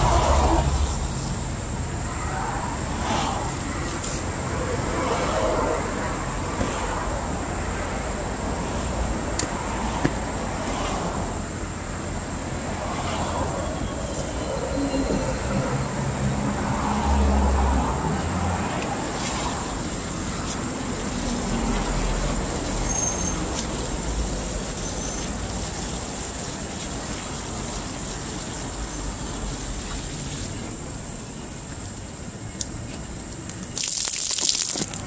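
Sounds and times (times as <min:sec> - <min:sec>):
traffic rumble: 0:00.0 - 0:35.0
vehicle engine passing: 0:15.0 - 0:20.2.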